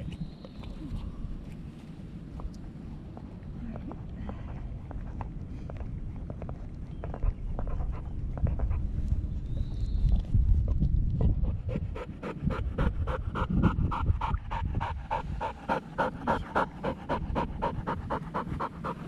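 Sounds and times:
dog panting hard: 0:11.2 - 0:19.0.

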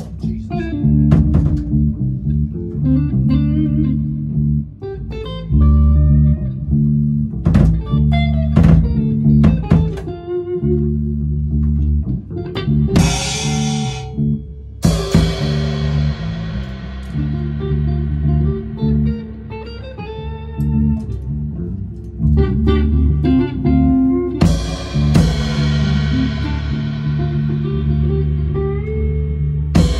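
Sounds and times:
electric guitars playing: 0:00.0 - 0:29.9
drum hits: 0:01.1 - 0:01.8, 0:13.0 - 0:19.8, 0:24.4 - 0:27.8
cymbal crashes: 0:13.0 - 0:14.2, 0:14.8 - 0:19.8.

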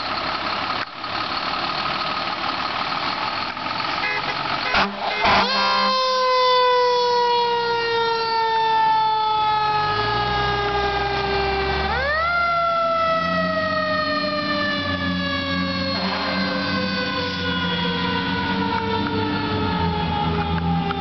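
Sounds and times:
truck engine running: 0:00.0 - 0:06.2, 0:10.7 - 0:21.0
fire engine siren winding up: 0:04.0 - 0:21.0.

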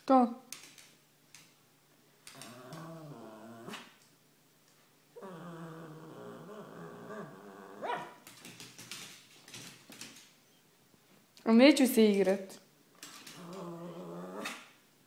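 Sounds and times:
dog growling: 0:02.3 - 0:04.0, 0:05.2 - 0:08.0, 0:13.3 - 0:14.7
dog barking: 0:07.8 - 0:08.2.

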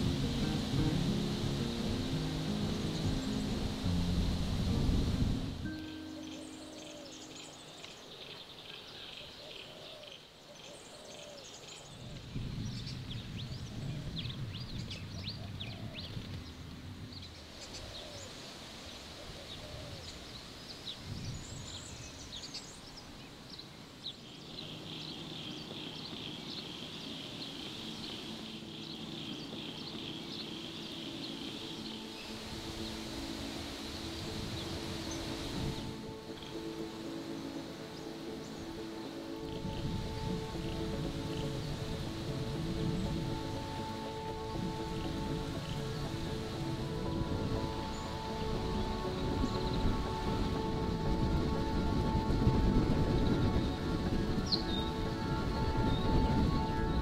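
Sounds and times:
steady low tones: 0:00.0 - 0:07.8
birds chirping and trilling: 0:00.0 - 0:57.0.

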